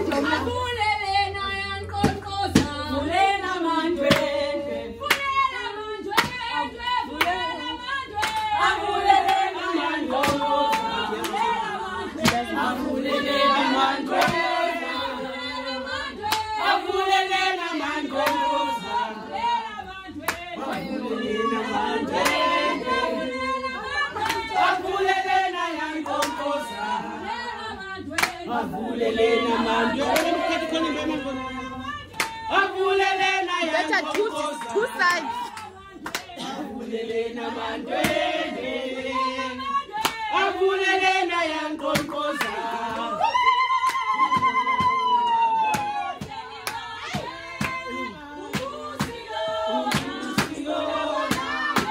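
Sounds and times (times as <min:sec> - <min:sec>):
group of people singing: 0:00.0 - 0:51.9
sharp hand clap: 0:04.0 - 0:04.4, 0:05.0 - 0:05.4, 0:06.1 - 0:06.5, 0:07.1 - 0:07.5, 0:08.2 - 0:08.5, 0:10.1 - 0:11.5, 0:12.2 - 0:12.4, 0:14.1 - 0:14.6, 0:20.2 - 0:20.9, 0:22.2 - 0:22.5, 0:24.2 - 0:24.5, 0:26.0 - 0:26.4, 0:28.1 - 0:28.4, 0:30.1 - 0:30.4, 0:32.1 - 0:32.4, 0:34.1 - 0:36.4, 0:40.0 - 0:40.3, 0:43.8 - 0:47.8, 0:49.9 - 0:50.6, 0:51.3 - 0:51.9.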